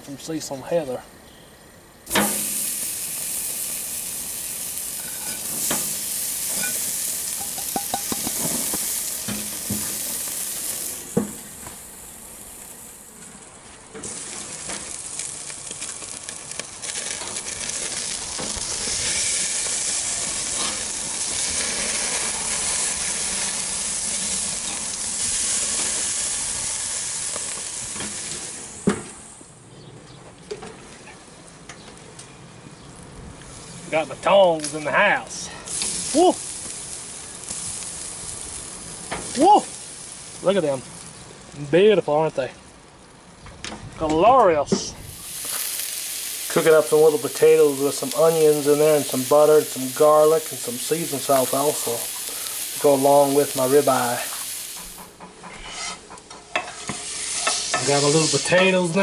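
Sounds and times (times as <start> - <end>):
steaks sizzling on a grill: 1.6 - 29.4, 33.4 - 43.0, 44.6 - 59.0
grill lid closing clank: 2.1 - 2.8, 5.1 - 10.3, 11.0 - 11.7.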